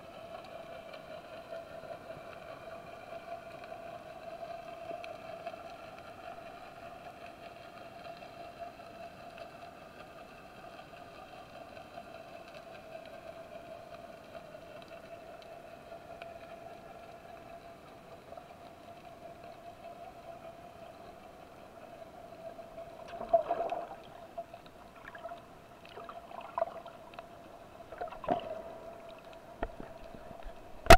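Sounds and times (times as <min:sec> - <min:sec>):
underwater hum: 0:00.0 - 0:30.9
faint clicks: 0:00.3 - 0:21.6.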